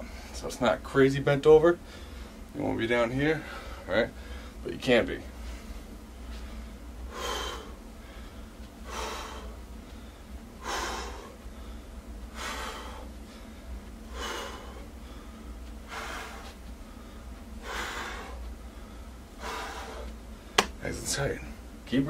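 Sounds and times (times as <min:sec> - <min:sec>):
man breathing hard: 0:00.0 - 0:00.4, 0:01.8 - 0:02.5, 0:03.2 - 0:04.6, 0:05.3 - 0:20.7
forceful breath out: 0:06.3 - 0:20.6.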